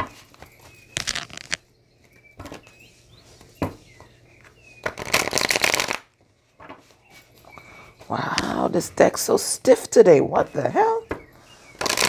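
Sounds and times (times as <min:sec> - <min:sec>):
cards shuffling: 0:01.0 - 0:01.6.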